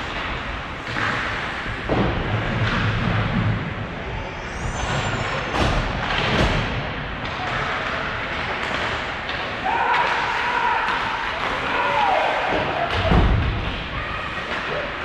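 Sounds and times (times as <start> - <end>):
skates scraping ice: 0.0 - 3.8.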